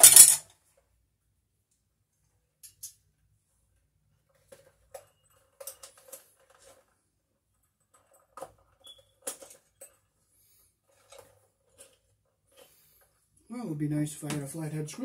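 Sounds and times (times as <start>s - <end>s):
hand tools clinking in a bag: 0.0s - 0.4s.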